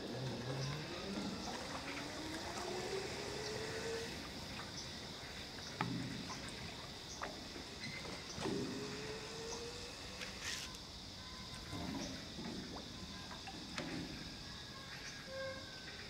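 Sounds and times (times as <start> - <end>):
thin rising tone: 0.0 - 4.8.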